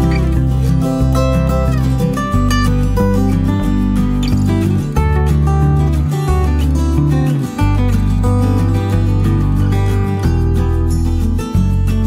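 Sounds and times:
guitar-led background music: 0.0 - 12.0.

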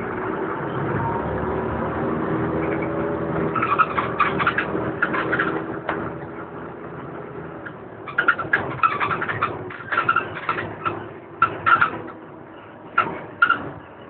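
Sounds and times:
bus engine drone: 0.0 - 14.0
sharp clicking rattles: 3.5 - 6.3, 7.6 - 12.2, 12.9 - 13.8.

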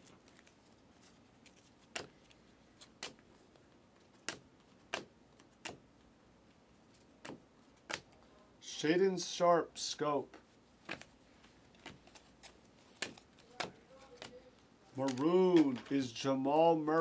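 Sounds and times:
cards flicking: 1.5 - 3.3, 4.1 - 5.9, 7.2 - 8.2, 11.8 - 16.0.

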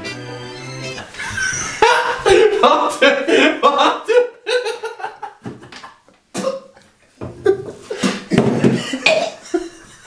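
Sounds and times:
man laughing: 1.0 - 6.0, 7.4 - 10.0
man gagging and retching: 9.0 - 9.4.

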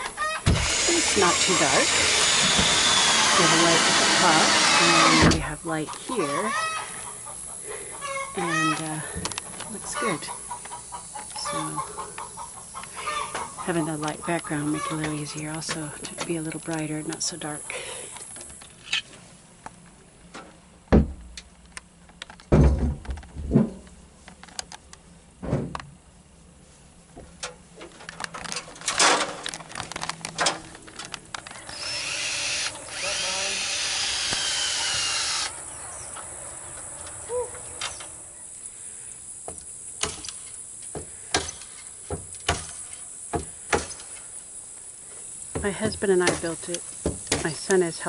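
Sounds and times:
power drill running: 0.0 - 5.5, 31.6 - 35.6
knocks and thumps on wood: 20.9 - 21.3, 22.5 - 23.8, 42.1 - 42.7, 43.3 - 44.0, 45.5 - 47.5.

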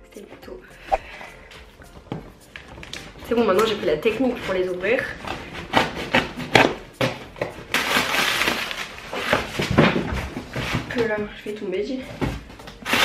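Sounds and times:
knife slitting packing tape: 5.3 - 6.8, 7.7 - 9.6, 12.8 - 13.0.

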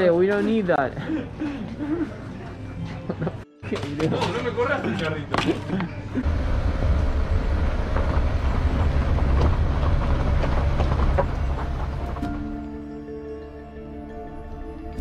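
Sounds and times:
car engine and tyres rumbling: 6.2 - 12.8.

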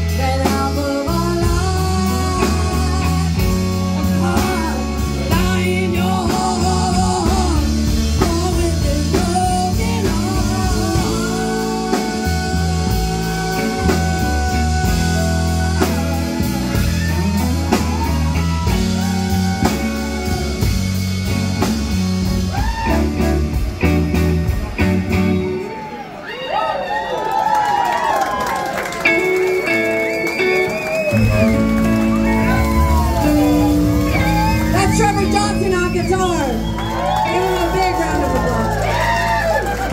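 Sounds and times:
woman singing: 0.0 - 16.3
electric bass: 0.0 - 26.0, 29.1 - 39.9
electric guitar: 0.0 - 26.1, 28.3 - 39.9
drums: 0.0 - 39.9.

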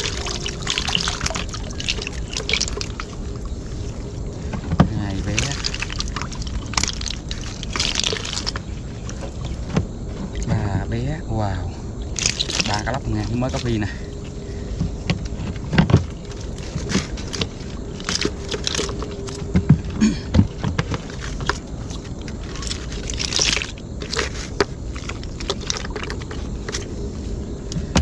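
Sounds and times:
plastic sack rustling: 0.0 - 10.3.

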